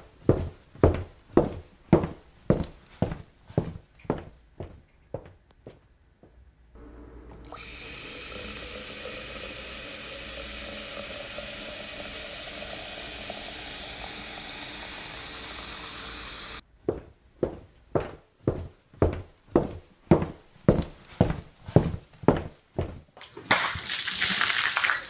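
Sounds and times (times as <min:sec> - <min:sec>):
tap water running into bucket: 0:07.3 - 0:16.6, 0:23.5 - 0:25.0.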